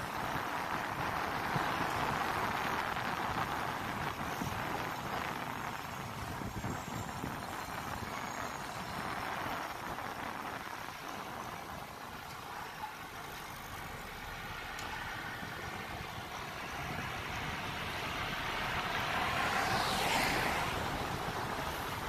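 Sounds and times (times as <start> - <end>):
city street traffic: 0.0 - 22.0
vehicle passing close: 14.1 - 22.0.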